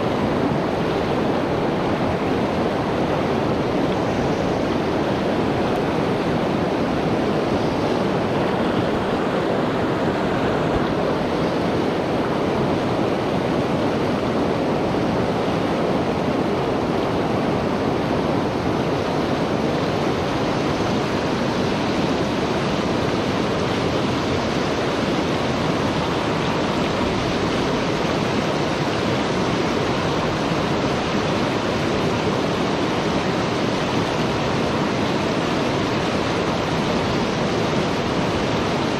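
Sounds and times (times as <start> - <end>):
river rushing over stones: 0.0 - 38.9.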